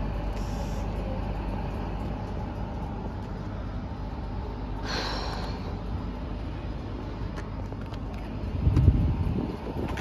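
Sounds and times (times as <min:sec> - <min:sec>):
electric locomotive humming: 0:00.0 - 0:10.0.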